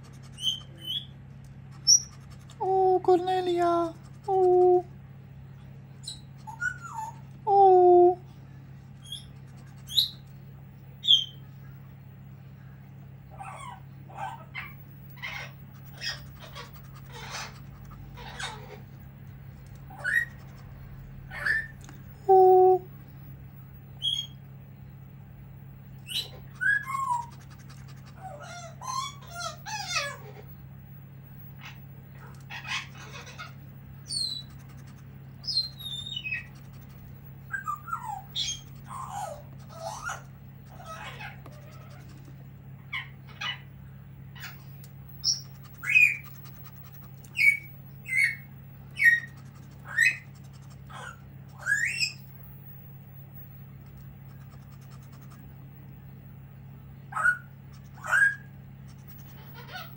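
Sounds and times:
parrot squawking and whistling: 0:00.2 - 0:02.6, 0:06.0 - 0:07.3, 0:09.0 - 0:10.2, 0:13.3 - 0:18.8, 0:19.9 - 0:20.6, 0:21.3 - 0:22.9, 0:24.0 - 0:24.4, 0:26.0 - 0:30.4, 0:31.6 - 0:34.8, 0:35.4 - 0:36.8, 0:37.4 - 0:42.1, 0:44.4 - 0:52.3, 0:57.1 - 0:58.5, 0:59.2 - 0:59.9.

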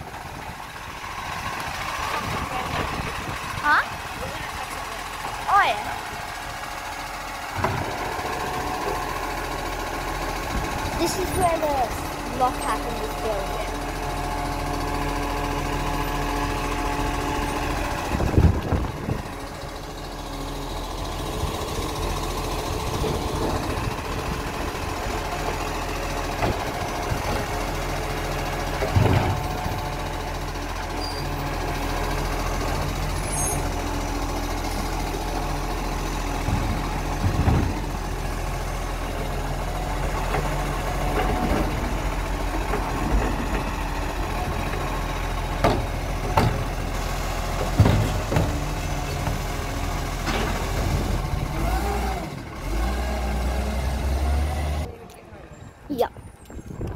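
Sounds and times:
garbage truck engine running: 0:00.0 - 0:56.9
loud clunks of bin arm: 0:28.8 - 0:29.6, 0:36.4 - 0:37.9, 0:45.6 - 0:46.8, 0:47.6 - 0:48.7.

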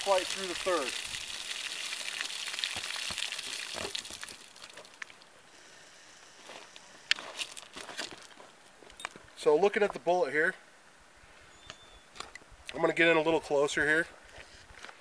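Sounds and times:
water pouring and splashing: 0:00.0 - 0:05.3.

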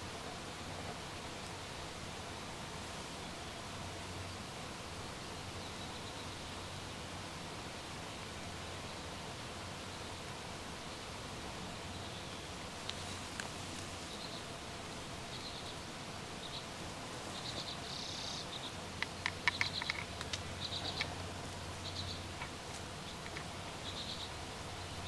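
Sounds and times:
sharp clicks: 0:19.0 - 0:21.1.

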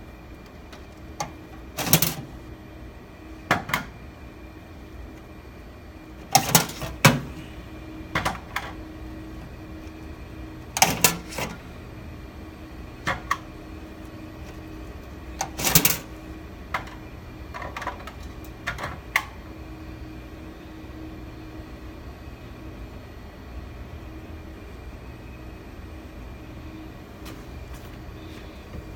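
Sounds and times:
steady machine hum: 0:00.0 - 0:28.9
metal and plastic parts clacking: 0:00.7 - 0:02.3, 0:06.2 - 0:07.2, 0:10.8 - 0:11.6, 0:15.4 - 0:16.1.

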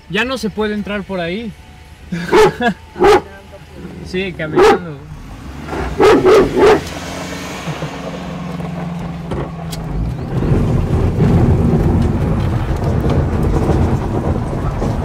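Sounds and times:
car cabin engine hum: 0:00.0 - 0:15.0
tyres rumbling on dirt road: 0:00.0 - 0:15.0
dog barking: 0:02.3 - 0:03.4, 0:04.5 - 0:05.0, 0:05.9 - 0:06.9.

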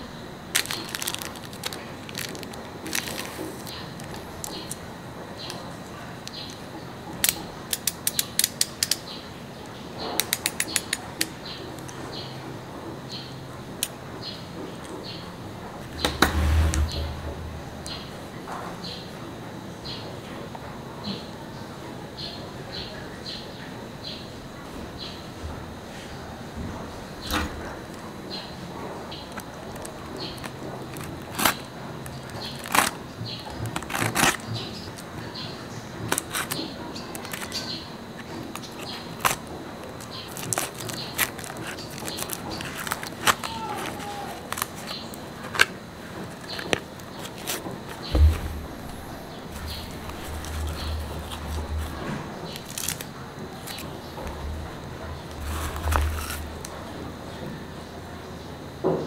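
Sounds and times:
plastic wrap crinkling: 0:00.5 - 0:04.8, 0:29.1 - 0:35.4, 0:36.0 - 0:56.8
cardboard box rustling: 0:00.6 - 0:04.6, 0:40.0 - 0:53.0, 0:55.3 - 0:56.7
utility knife cutting cardboard: 0:29.8 - 0:34.7.

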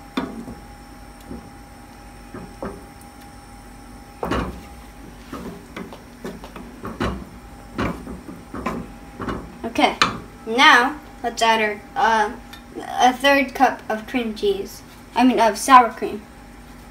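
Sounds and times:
wooden spoon knocking a pot: 0:05.4 - 0:10.3.

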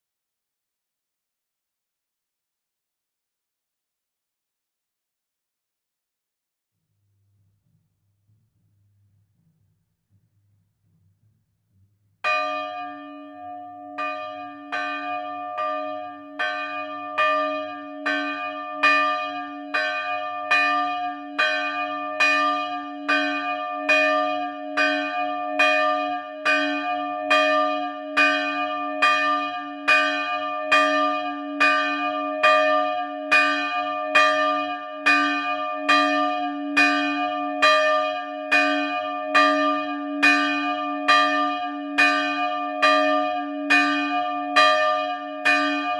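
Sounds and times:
large church bell ringing: 0:12.2 - 0:45.9.

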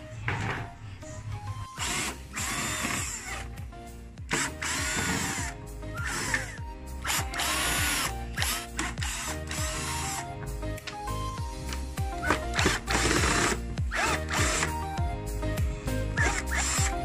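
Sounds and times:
cordless drill motor whine: 0:01.6 - 0:03.5, 0:04.3 - 0:10.2, 0:12.2 - 0:15.0, 0:16.2 - 0:17.0.

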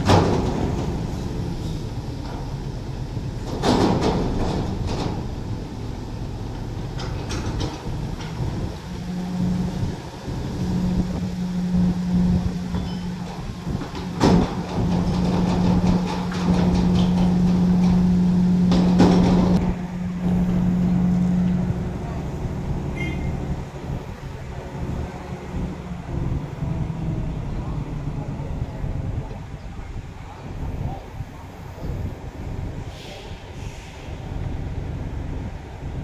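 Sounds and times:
diesel engines running: 0:00.0 - 0:36.0
metal clanks: 0:03.4 - 0:05.3, 0:06.9 - 0:08.6, 0:12.7 - 0:20.7.

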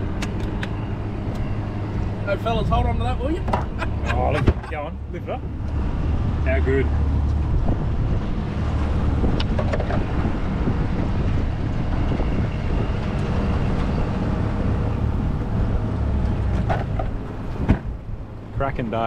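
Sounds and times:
wind buffeting microphone: 0:05.4 - 0:18.5.

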